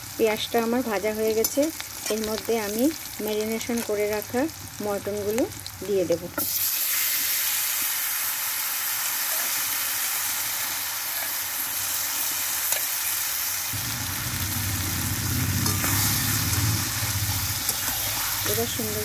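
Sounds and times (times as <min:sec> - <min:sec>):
meat and onions sizzling in oil: 0:00.0 - 0:19.0
low rumbling noise: 0:13.8 - 0:19.0
metal spatula stirring meat: 0:15.6 - 0:19.0.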